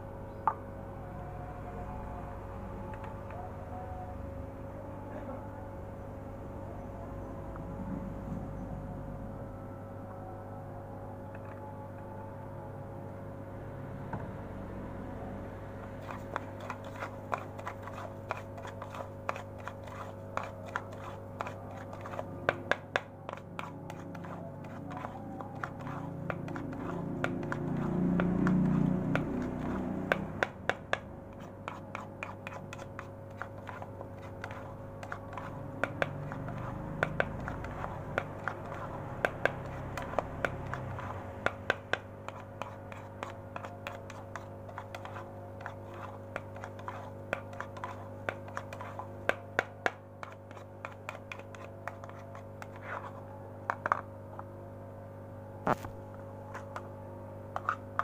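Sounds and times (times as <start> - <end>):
spoon scraping pellets in plastic bowl: 16.0 - 30.6, 31.3 - 54.0, 57.6 - 58.0.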